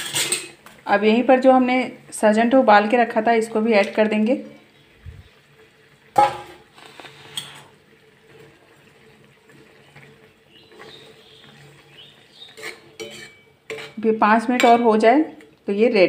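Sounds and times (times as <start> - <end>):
spoon scraping pan: 0.0 - 0.6, 9.5 - 15.0
spoon stirring wet gravy: 6.8 - 14.8.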